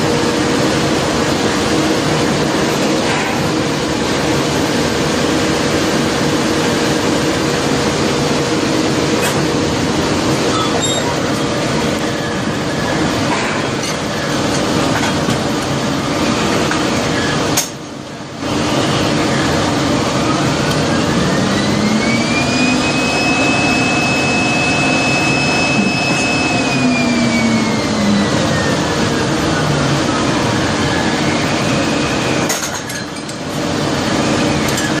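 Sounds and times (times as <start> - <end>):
drilling rig machinery noise: 0.0 - 35.0
motor whine: 18.6 - 32.5.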